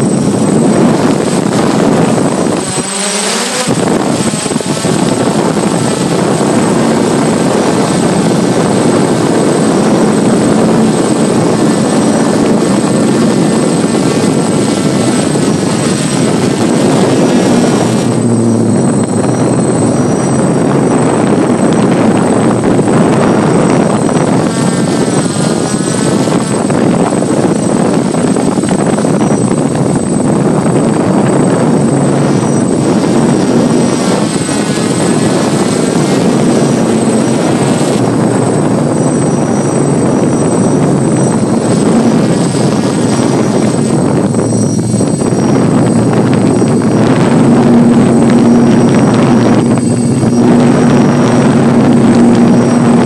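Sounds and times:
drone propellers buzzing: 0.0 - 53.0.

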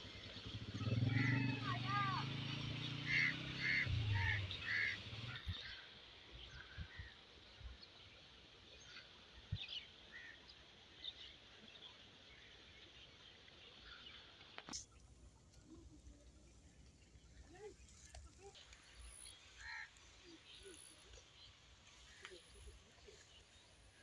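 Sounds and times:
small motorcycle engine passing: 0.0 - 5.8.

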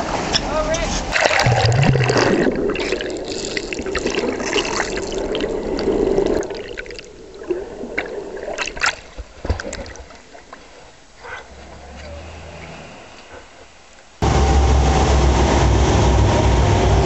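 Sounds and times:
underwater water gurgling: 1.1 - 11.2.

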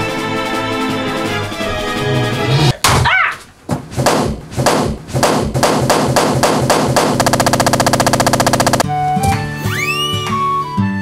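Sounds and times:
rapid hits rattling roll: 4.0 - 8.8.

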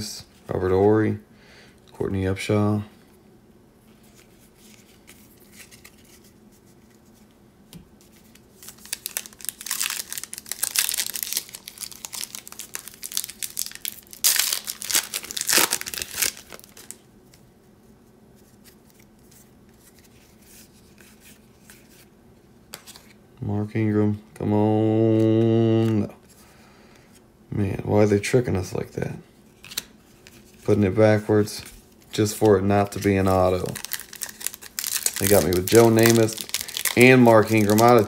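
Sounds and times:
foil wrapper tearing and crinkling: 8.6 - 17.0, 32.3 - 38.0.

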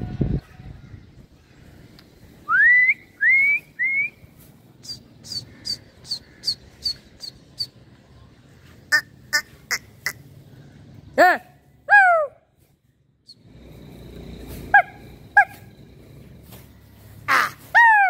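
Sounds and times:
person whistling: 2.5 - 4.2.

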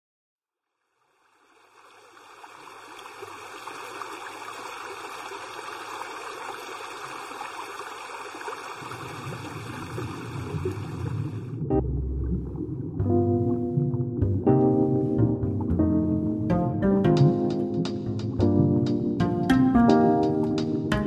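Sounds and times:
low hum: 9.5 - 16.9.

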